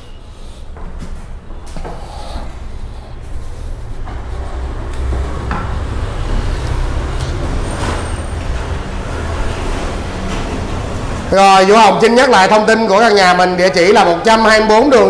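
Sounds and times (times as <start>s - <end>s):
road traffic rumble: 0.0s - 14.1s.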